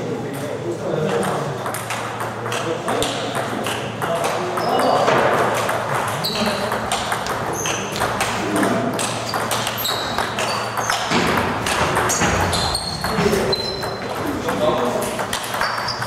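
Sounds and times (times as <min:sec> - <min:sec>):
table tennis balls clicking: 0:01.0 - 0:16.0.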